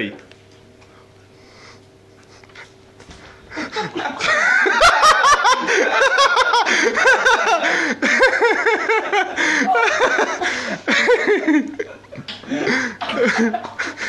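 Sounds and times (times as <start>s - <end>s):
women laughing hard: 3.5s - 14.0s.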